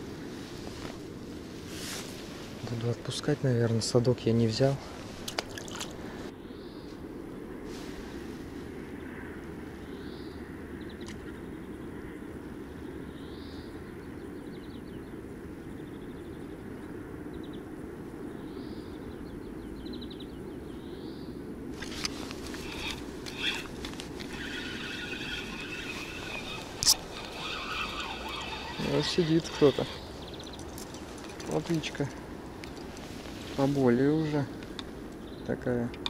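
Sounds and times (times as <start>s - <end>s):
small bird calling: 18.4s - 35.9s
riverbank rushing ambience: 21.6s - 36.0s
fishing gear clicks and knocks: 21.8s - 24.6s, 30.3s - 33.0s.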